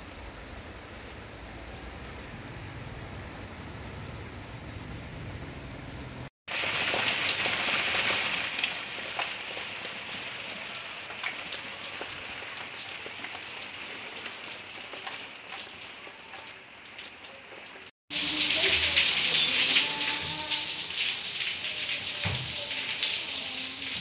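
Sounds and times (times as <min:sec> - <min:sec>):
rain falling: 0:04.9 - 0:24.0
water dripping off roof: 0:06.5 - 0:24.0.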